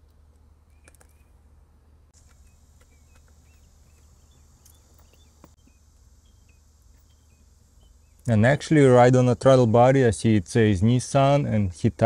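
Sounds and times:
small birds chirping: 2.2 - 9.6.

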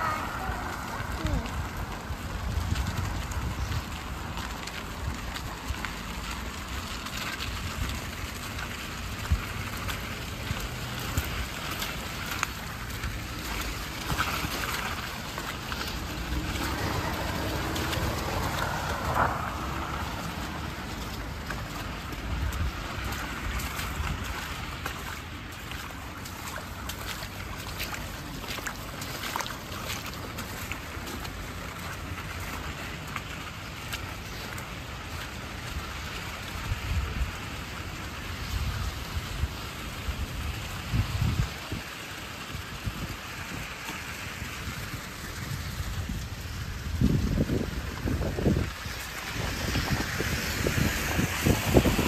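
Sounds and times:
car passing: 0.0 - 7.3, 7.9 - 25.4
footsteps on slush and ice: 0.0 - 52.0
rain falling: 0.0 - 52.0
tyres hissing on wet road: 0.0 - 52.0
wind rumble on microphone: 0.0 - 52.0.

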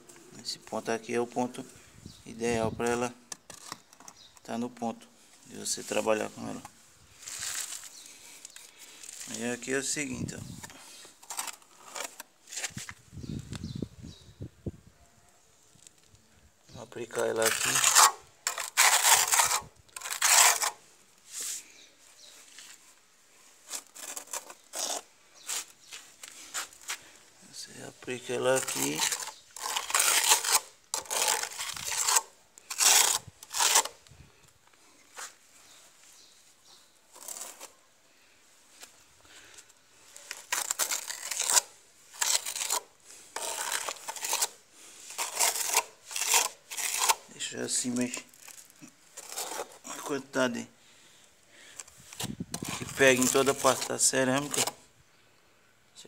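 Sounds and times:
steel trowel scraping mortar: 17.1 - 20.8, 23.7 - 25.1, 28.5 - 34.0, 40.3 - 47.3, 48.4 - 50.4, 52.5 - 54.8.

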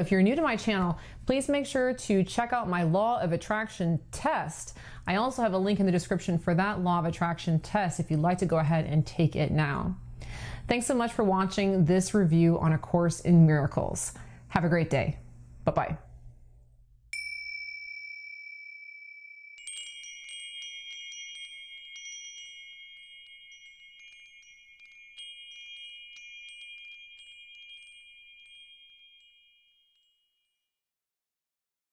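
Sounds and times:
bell-like strike ringing: 17.2 - 25.6
tinkling wind chimes: 17.2 - 30.7.

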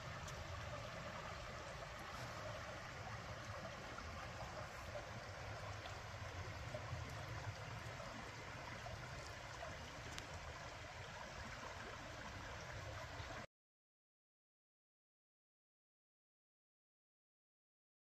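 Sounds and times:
creek babbling over rocks: 0.0 - 13.5.

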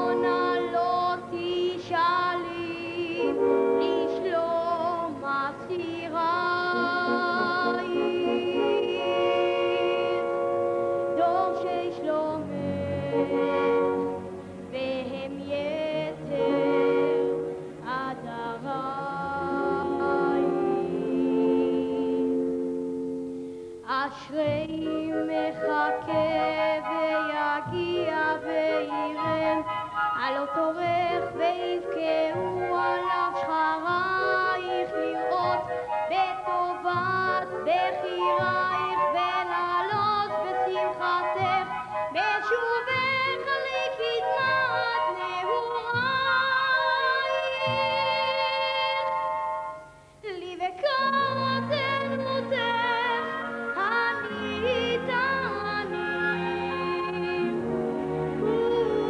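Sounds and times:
boy singing into a microphone: 0.0 - 10.4, 11.2 - 13.8, 23.8 - 49.2, 50.2 - 57.4
symphony orchestra with strings: 0.0 - 59.0.

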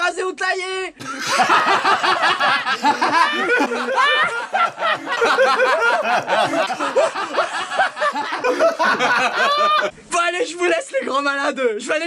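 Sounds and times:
men laughing loudly: 1.0 - 9.9.

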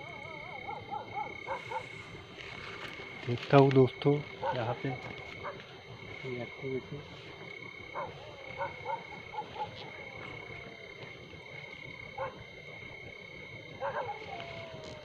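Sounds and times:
dogs barking faintly: 0.0 - 2.2, 3.2 - 5.8, 7.4 - 12.6, 13.7 - 15.0
night insects chirring: 0.0 - 15.0.

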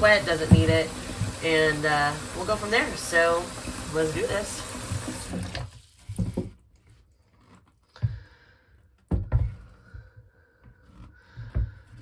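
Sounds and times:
objects thumping and knocking: 0.3 - 1.4, 4.9 - 6.7, 9.0 - 10.2, 11.3 - 12.0.

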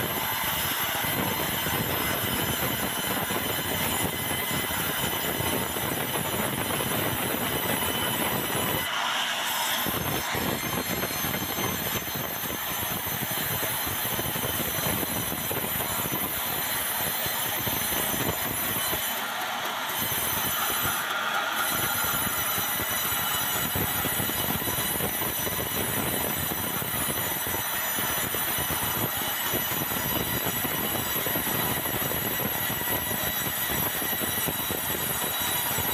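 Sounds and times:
band saw cutting timber: 0.0 - 35.9.

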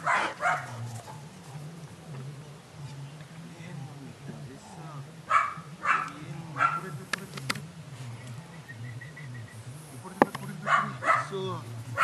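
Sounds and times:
puppy barking: 0.0 - 1.2, 5.3 - 6.9, 10.6 - 11.4.

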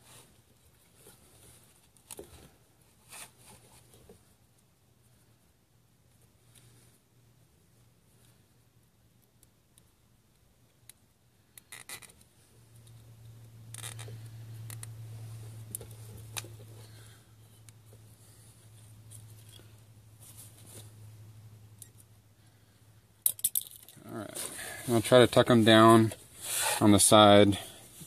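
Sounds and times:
low steady hum: 0.0 - 28.0
zip ties clicking and rasping: 10.8 - 13.0, 13.7 - 15.0.

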